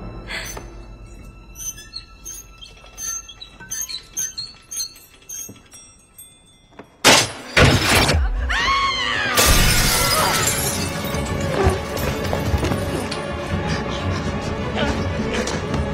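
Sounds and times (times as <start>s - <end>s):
chandelier tinkling: 1.1s - 7.6s
breaking glass and debris clattering: 4.9s - 8.2s, 9.4s - 13.2s
crash of shattering glass and metal: 7.0s - 8.4s, 9.4s - 13.1s.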